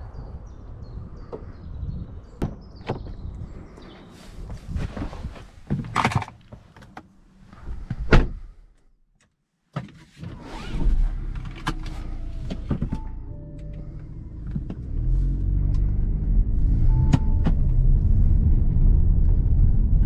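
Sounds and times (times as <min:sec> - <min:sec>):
car door slamming: 0:08.0 - 0:08.4
diesel engine starting and idling: 0:10.8 - 0:19.6.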